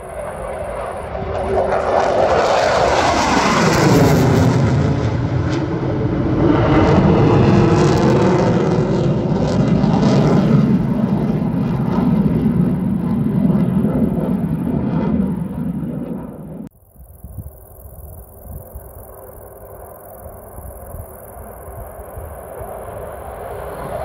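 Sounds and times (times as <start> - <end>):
fighter jet roaring past: 0.0 - 16.7, 22.0 - 24.0.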